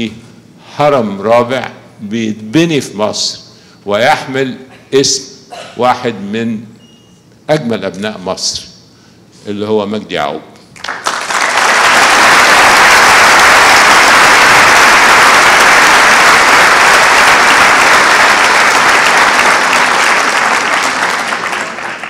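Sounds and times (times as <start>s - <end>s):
large audience applauding: 10.8s - 22.0s.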